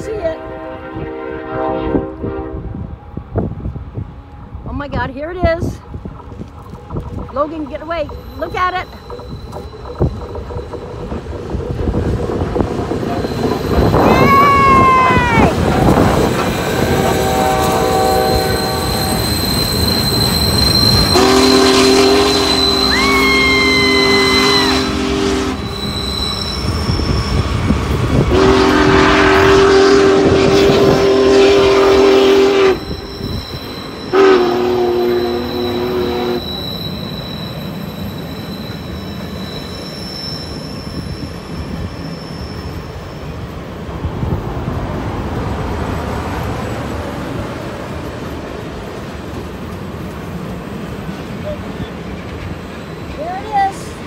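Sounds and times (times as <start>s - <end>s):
steam locomotive whistle: 0.2s - 2.9s, 13.0s - 27.6s, 28.2s - 43.0s
high wheel squeal: 7.6s - 28.2s, 31.8s - 43.6s.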